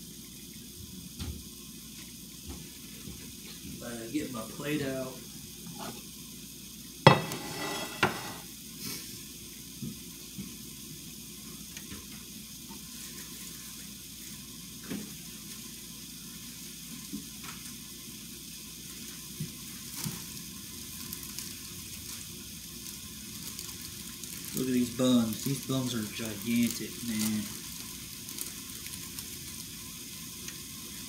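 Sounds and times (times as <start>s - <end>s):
patties sizzling in a pan: 0.0s - 31.0s
kitchen things knocking: 7.1s - 8.4s
plastic bag crinkling: 20.9s - 29.7s.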